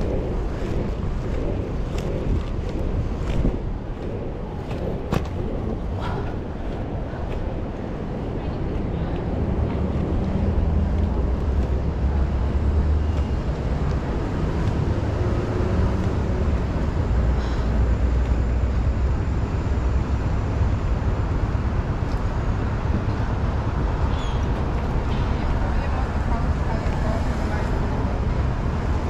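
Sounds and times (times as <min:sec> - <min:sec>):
inline skate wheels on asphalt: 0:00.0 - 0:19.5
wind on microphone: 0:00.0 - 0:29.0.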